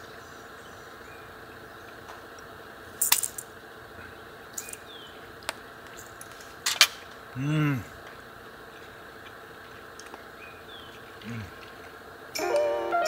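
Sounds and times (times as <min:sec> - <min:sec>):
low background hum: 0:00.0 - 0:13.0
hard objects clinking: 0:03.0 - 0:03.5.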